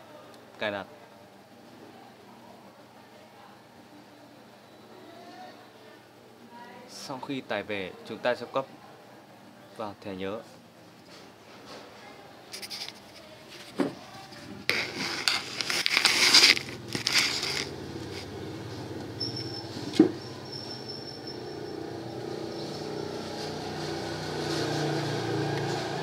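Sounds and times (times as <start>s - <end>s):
plastic scraping and rustling: 12.5s - 18.4s.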